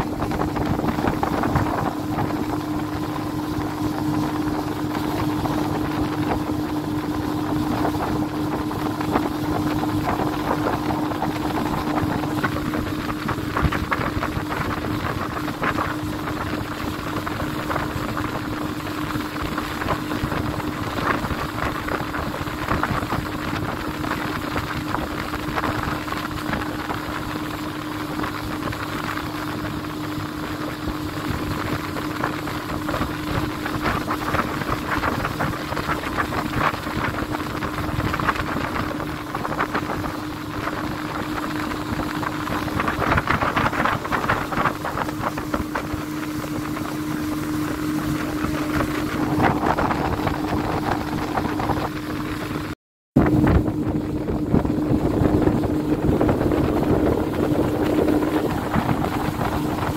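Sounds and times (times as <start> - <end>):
motorboat engine humming: 0.0 - 59.9
wind buffeting microphone: 0.0 - 59.9.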